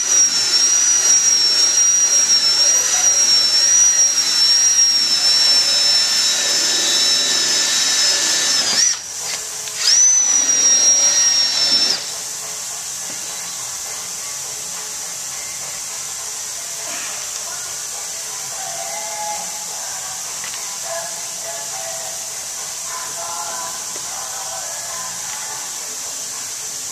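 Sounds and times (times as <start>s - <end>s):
cordless drill whine: 0.0s - 12.3s.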